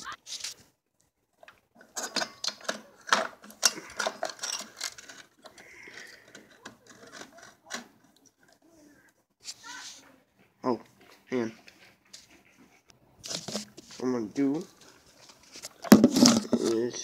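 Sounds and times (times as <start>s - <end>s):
metallic clicks and rattles: 1.4s - 8.6s
soft rustle: 8.3s - 15.8s.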